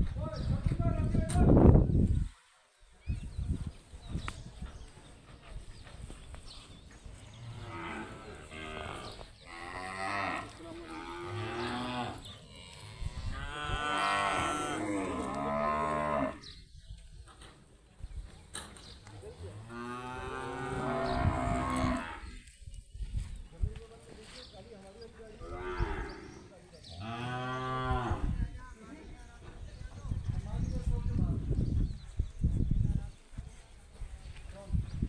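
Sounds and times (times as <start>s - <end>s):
cattle mooing: 7.5s - 16.5s, 19.6s - 22.3s.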